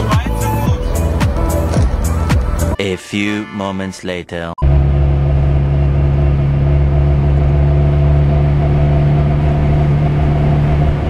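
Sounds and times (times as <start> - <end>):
car engine droning: 4.6 - 11.0.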